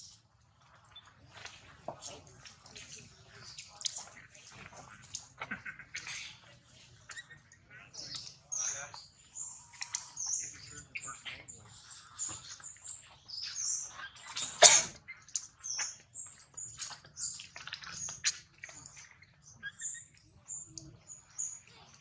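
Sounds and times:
high-pitched chirps and squeaks: 7.1s - 11.2s, 11.8s - 21.6s.

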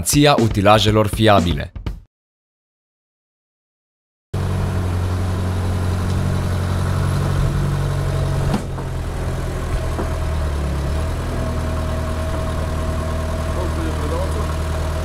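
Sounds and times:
diesel engine idling: 4.4s - 15.0s.

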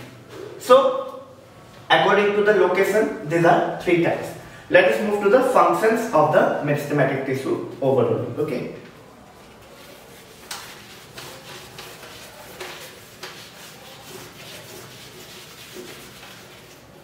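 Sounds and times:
whiteboard being wiped by hand: 9.3s - 17.0s.

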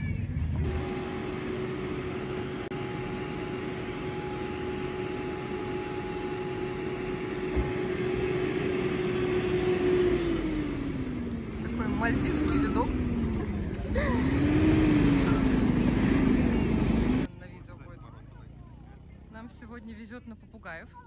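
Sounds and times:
rushing background noise: 0.0s - 17.3s
motor running: 0.6s - 17.3s.

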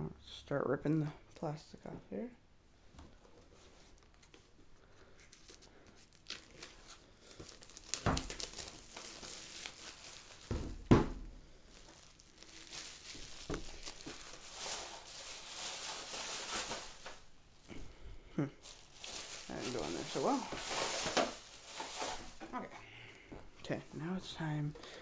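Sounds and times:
plastic wrap tearing and crinkling: 5.2s - 17.8s, 18.6s - 22.7s
box knocks: 10.5s - 11.2s.

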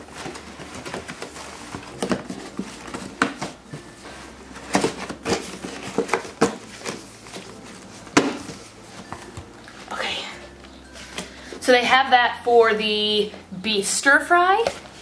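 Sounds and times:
cardboard box being folded: 0.0s - 9.9s.

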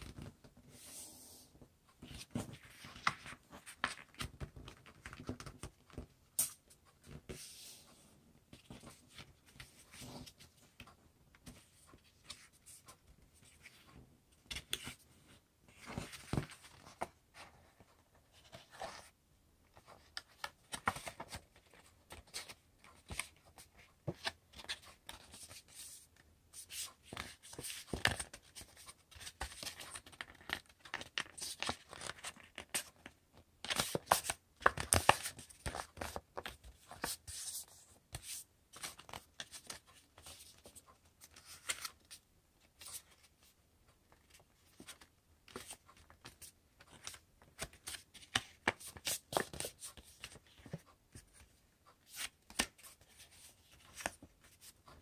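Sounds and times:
paper rustling and crinkling: 19.8s - 25.9s.

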